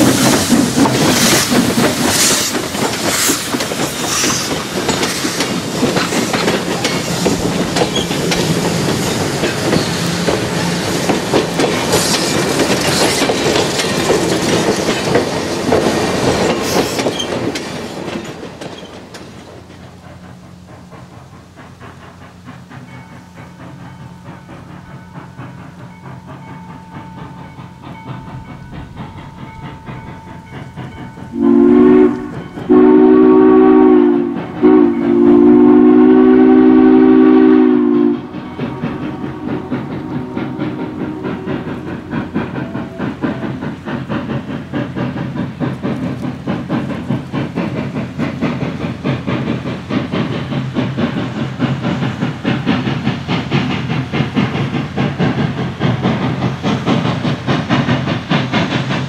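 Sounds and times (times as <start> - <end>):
steam locomotive exhaust: 0.0 - 59.0
steam whistle chord: 31.3 - 41.8.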